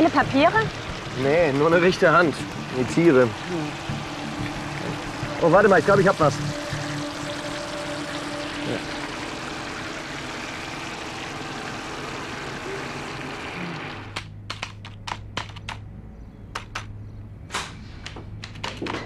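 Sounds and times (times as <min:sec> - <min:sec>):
low hum: 0:00.0 - 0:14.2
keyboard typing taps: 0:14.2 - 0:15.9, 0:16.5 - 0:16.9, 0:18.0 - 0:19.0.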